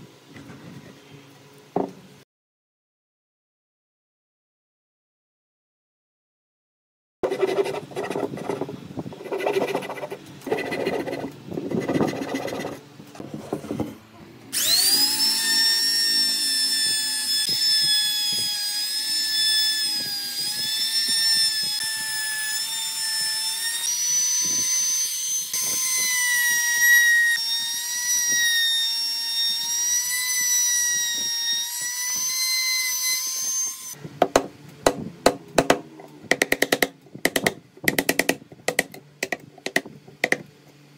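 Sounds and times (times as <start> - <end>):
hand saw rasping into wood: 7.2 - 12.8
router high whine: 14.5 - 34.0
chisel taps: 34.2 - 40.4.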